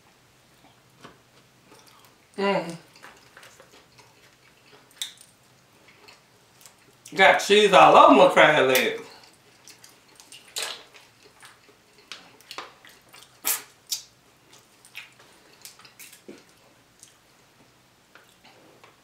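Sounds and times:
wet lip smacks and chewing: 2.9s - 7.1s, 9.2s - 17.2s.

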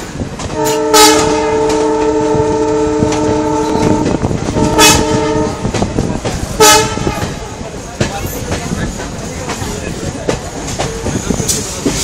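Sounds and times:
train coaches clattering on rails: 0.0s - 12.0s
train horn blasts: 0.5s - 5.9s, 6.6s - 7.4s.

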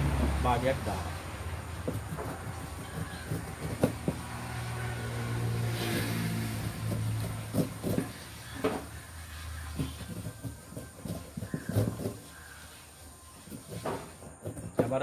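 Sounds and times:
passing vehicle engine hum: 0.0s - 12.6s.

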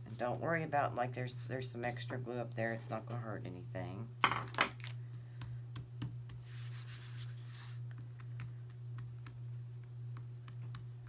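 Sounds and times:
steady low hum: 0.0s - 11.0s
hands rubbing clay: 5.1s - 11.0s.

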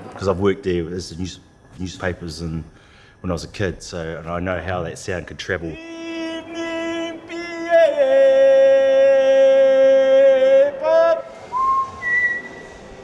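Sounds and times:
man singing long notes: 5.6s - 11.6s
thin whistle: 11.4s - 13.0s.

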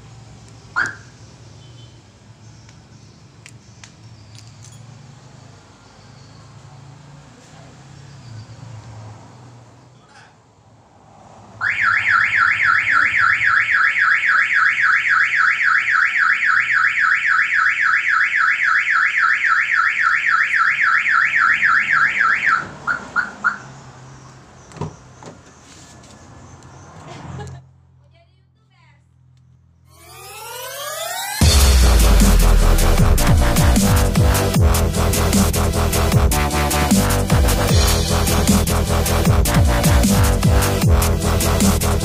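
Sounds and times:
car alarm chirps: 0.7s - 2.1s, 11.6s - 23.8s, 29.9s - 35.1s
car alarm siren wailing: 0.8s - 1.1s, 11.6s - 23.7s, 29.9s - 42.0s.

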